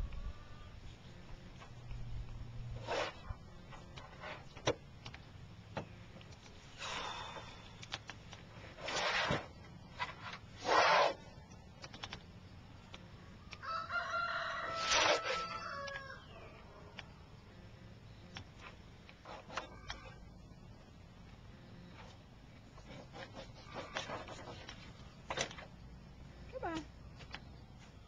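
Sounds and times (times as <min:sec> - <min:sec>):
rooster crowing: 0:13.6 - 0:16.9.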